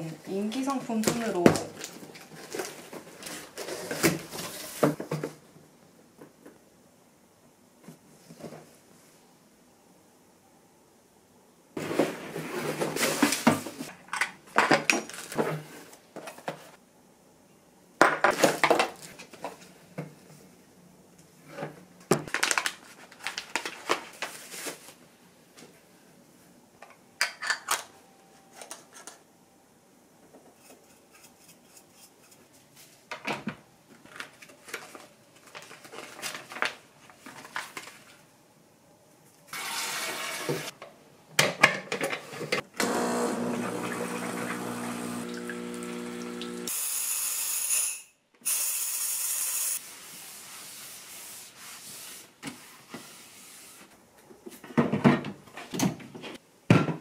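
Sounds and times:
plastic wrapping rustling: 0.9 - 4.8, 22.2 - 25.1, 34.0 - 38.2.

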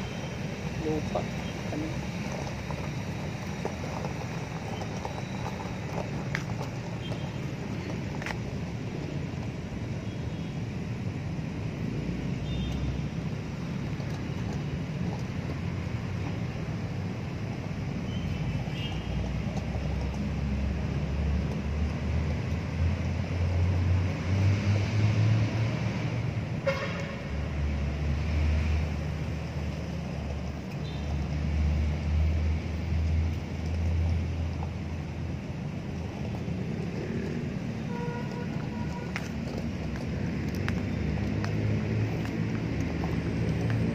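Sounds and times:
road traffic rumble: 0.0 - 43.9
car horn toot: 26.6 - 27.2, 37.9 - 39.1.

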